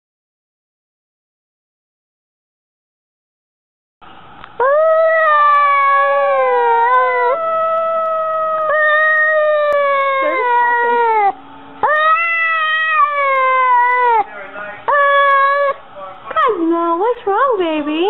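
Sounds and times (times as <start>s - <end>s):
cat yowling: 4.6s - 14.3s, 14.9s - 15.8s.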